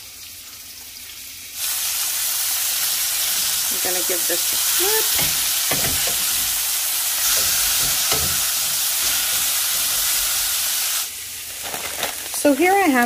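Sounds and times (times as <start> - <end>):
chicken sizzling in oil: 0.0 - 13.0
tongs knocking in skillet: 3.2 - 10.8.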